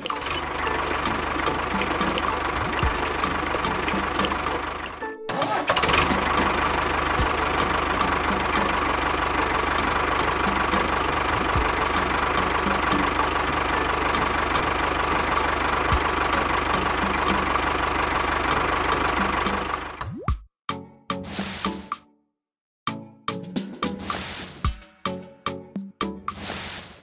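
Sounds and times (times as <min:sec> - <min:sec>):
tractor engine knocking: 0:00.0 - 0:20.0.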